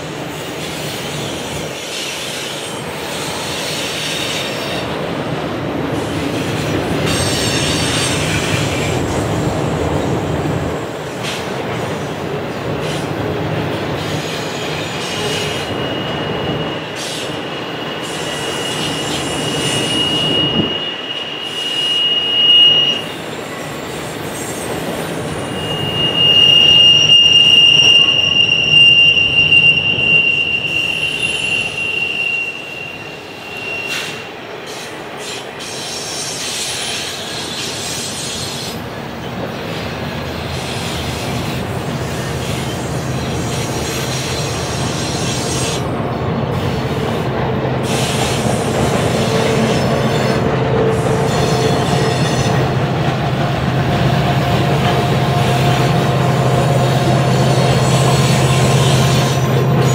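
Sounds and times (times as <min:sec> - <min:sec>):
train cars rumbling past: 0:00.0 - 0:59.9
high wheel squeal: 0:05.9 - 0:09.1, 0:13.9 - 0:38.8, 0:39.7 - 0:53.0.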